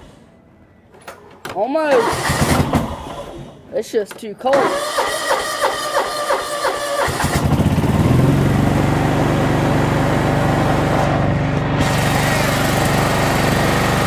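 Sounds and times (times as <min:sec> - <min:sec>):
lawn tractor engine starting: 0:01.8 - 0:03.6, 0:04.5 - 0:14.0.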